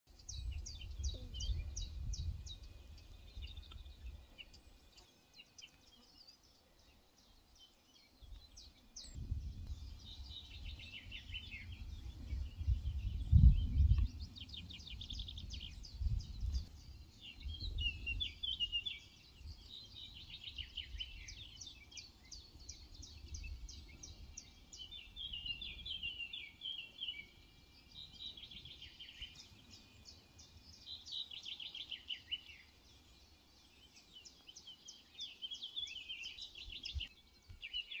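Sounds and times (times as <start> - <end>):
songbirds chirping and trilling: 0.1 - 38.0
gusty low rumble: 9.2 - 16.6.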